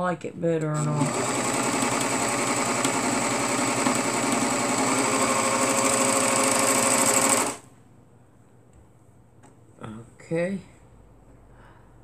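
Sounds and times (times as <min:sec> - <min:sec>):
overlock sewing machine running: 0:00.9 - 0:07.7.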